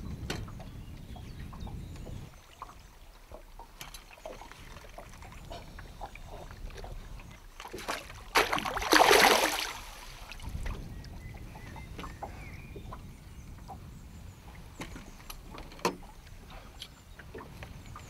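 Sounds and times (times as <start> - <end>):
loud water splash: 7.8 - 10.4.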